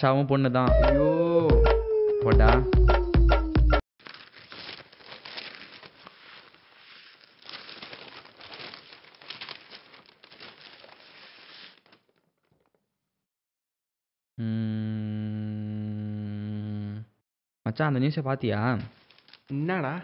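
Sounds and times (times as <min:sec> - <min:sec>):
newspaper pages rustling: 0:04.0 - 0:12.6, 0:18.8 - 0:20.0.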